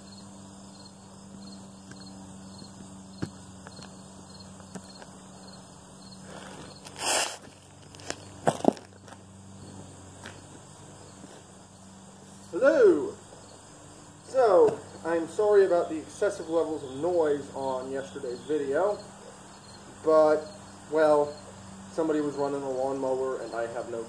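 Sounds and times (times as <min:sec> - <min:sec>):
insects chirping: 0:00.0 - 0:24.0
footsteps on grass: 0:01.7 - 0:15.9
rustling: 0:06.2 - 0:15.0.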